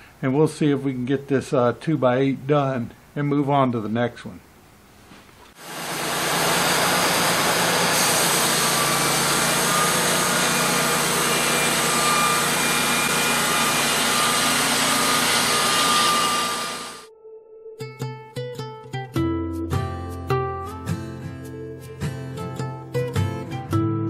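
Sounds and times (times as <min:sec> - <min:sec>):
band blade cutting wood: 0:05.6 - 0:17.1
bandmill engine under load: 0:05.6 - 0:17.1.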